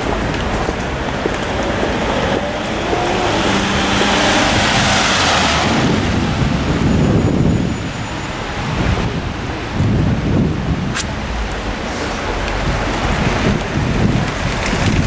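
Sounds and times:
car passing on wet road: 0.0s - 15.0s
steady rain: 0.0s - 15.0s.

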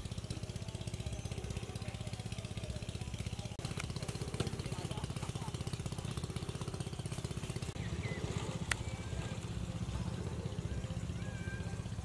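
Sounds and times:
engine running steadily: 0.0s - 12.0s
high whistling calls: 7.6s - 9.7s.

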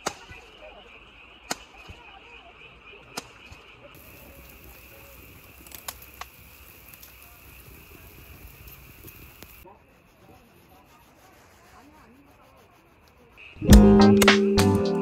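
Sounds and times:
fireworks popping: 3.1s - 9.7s
small crackles: 3.2s - 9.7s
meat sizzling on a grill: 4.0s - 9.7s.

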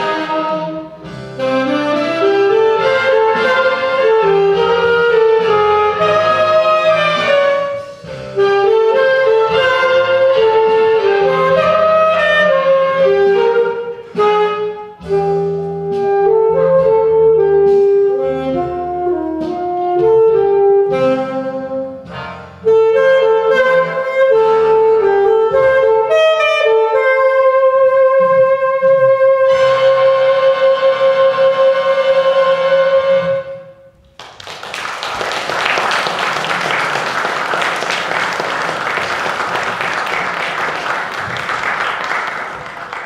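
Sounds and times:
alto saxophone jazz: 0.0s - 34.1s
audience applause: 34.2s - 43.0s.

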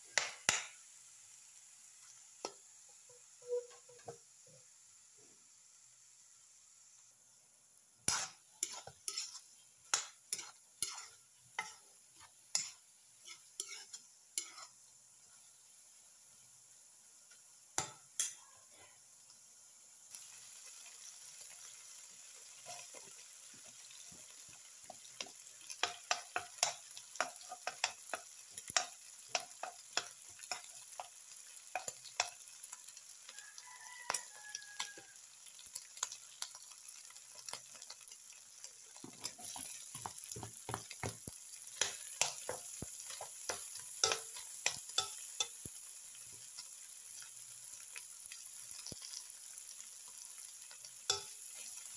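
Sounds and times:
meat sizzling in a wok: 0.0s - 51.9s
metal spatula scraping pan: 8.1s - 14.8s.

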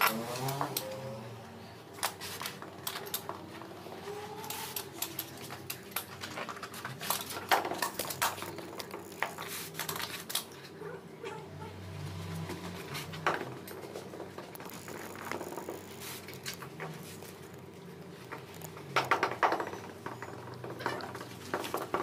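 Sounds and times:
hand tools clicking and knocking: 4.4s - 10.5s, 13.1s - 22.0s.

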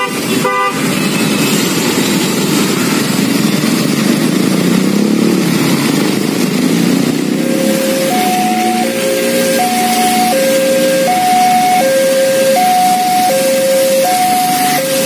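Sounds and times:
engines revving: 0.0s - 15.0s
traffic passing on wet road: 0.0s - 15.0s
two-tone level crossing alarm: 7.4s - 15.0s.

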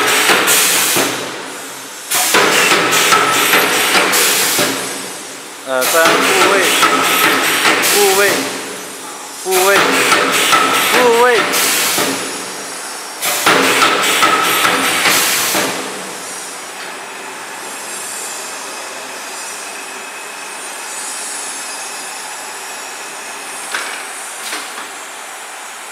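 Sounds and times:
welding machine hissing: 0.0s - 25.9s
carriage rolling along rail: 5.9s - 12.4s.

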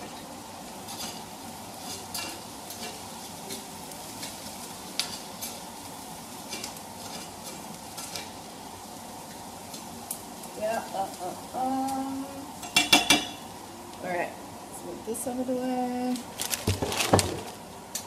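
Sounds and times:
onions sizzling in a frying pan: 0.0s - 18.0s
spatula scraping a pan: 0.8s - 3.6s.

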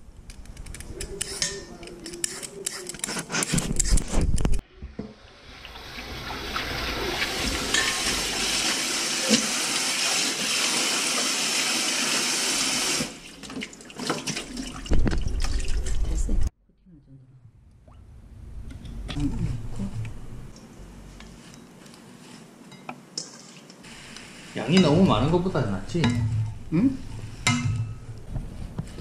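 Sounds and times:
water splashing: 5.2s - 11.4s, 12.4s - 16.4s
kitchen tap running into sink: 5.6s - 13.2s.

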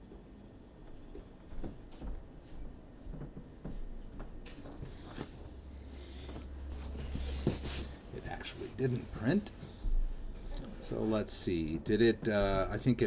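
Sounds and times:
knocks and rustles: 6.2s - 7.9s.

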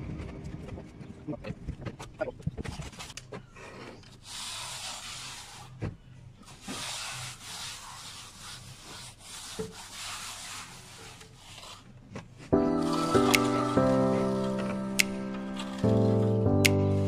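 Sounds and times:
plastering tool scraping wet render: 3.8s - 12.0s.

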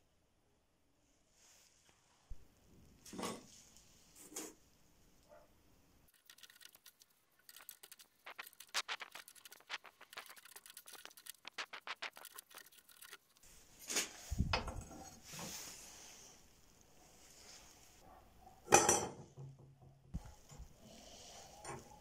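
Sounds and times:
metal strip clicking and scraping: 6.1s - 14.0s.

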